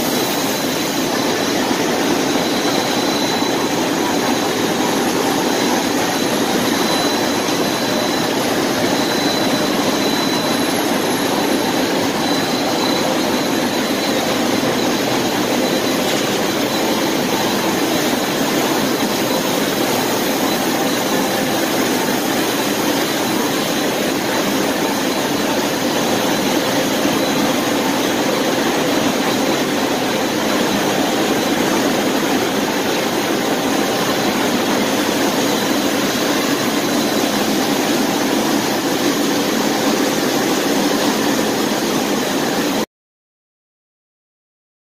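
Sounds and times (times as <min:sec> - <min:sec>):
faint high whine: 0:00.0 - 0:42.9
industrial machine mechanical rush: 0:00.1 - 0:42.8.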